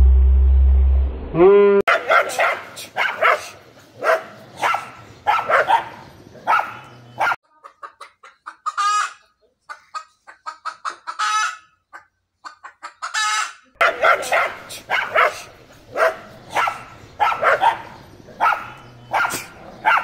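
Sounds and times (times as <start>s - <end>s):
dogs barking: 1.9s - 7.4s, 13.8s - 20.0s
hen clucking: 1.9s - 20.0s.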